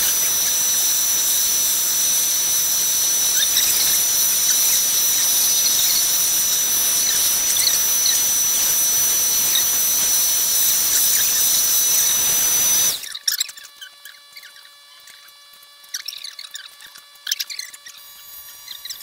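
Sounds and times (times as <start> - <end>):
vacuum cleaner running: 0.0 - 13.2.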